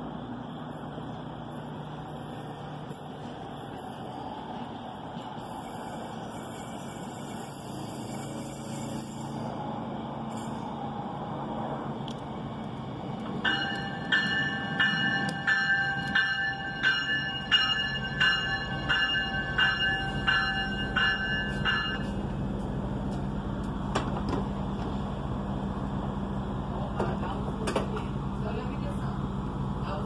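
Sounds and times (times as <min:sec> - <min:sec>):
diesel engines humming: 0:00.0 - 0:30.0
train bell ringing: 0:00.5 - 0:10.7, 0:13.4 - 0:22.6.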